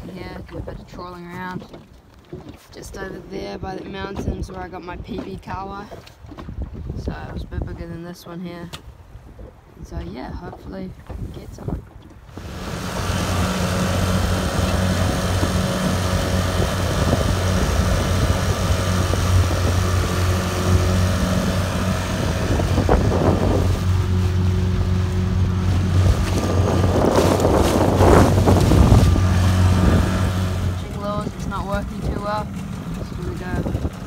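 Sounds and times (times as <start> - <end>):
wind on microphone: 2.4 - 8.2, 8.8 - 34.0
outboard motor running: 11.9 - 34.0
water rushing from wake: 12.1 - 34.0.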